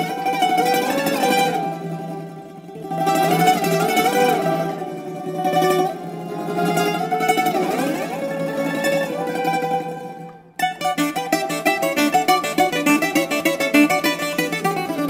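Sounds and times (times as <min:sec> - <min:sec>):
plucked bouzouki melody: 0:00.0 - 0:15.0.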